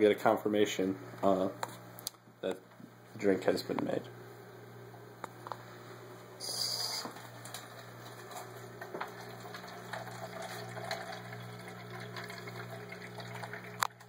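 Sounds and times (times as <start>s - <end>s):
steady low hum: 0.0s - 14.0s
liquid trickling into plastic cup: 7.7s - 14.0s.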